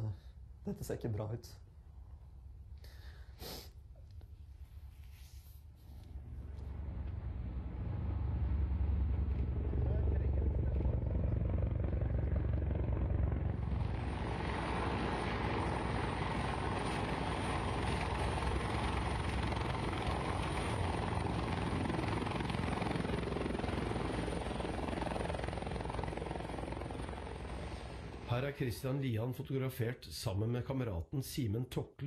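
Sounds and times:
helicopter flying close by: 6.0 - 28.3.

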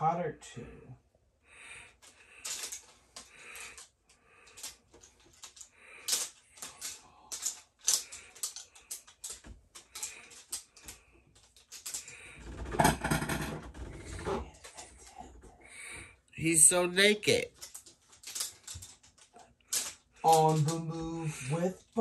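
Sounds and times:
clicking and tapping at desk: 2.0 - 13.9
rustling and knocking: 4.6 - 15.6.

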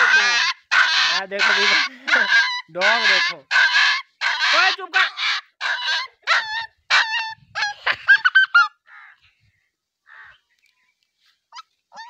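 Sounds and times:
puppy yelping and whining: 0.0 - 8.7, 11.5 - 12.0.

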